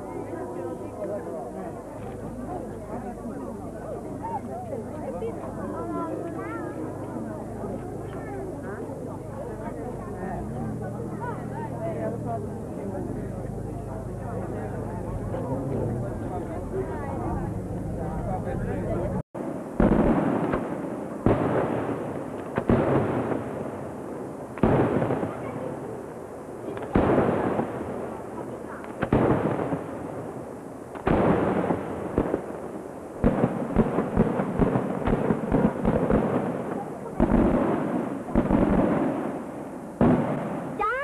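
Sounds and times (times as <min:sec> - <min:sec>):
firework bangs with rolling echo: 0:19.4 - 0:41.0
fireworks cracking and popping: 0:19.4 - 0:41.0.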